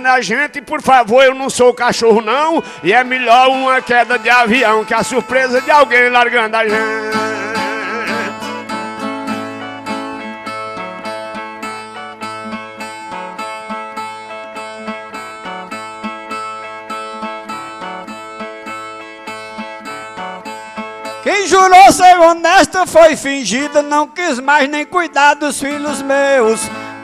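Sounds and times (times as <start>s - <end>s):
plucked ten-string violas: 2.1s - 21.4s.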